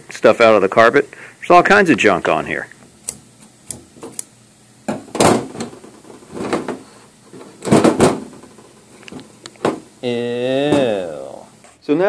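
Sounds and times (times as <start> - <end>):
scissors snipping through hair: 3.0 - 4.3.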